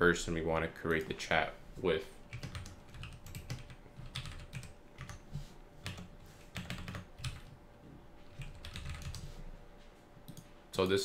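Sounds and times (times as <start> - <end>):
computer keyboard keys clicking: 2.3 - 5.2, 5.8 - 7.6, 8.3 - 9.2.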